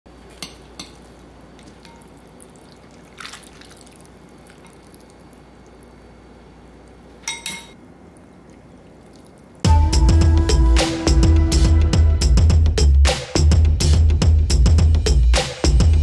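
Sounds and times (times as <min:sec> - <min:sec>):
noodles dripping: 0:00.4 - 0:09.6
soft splash: 0:01.6 - 0:05.2.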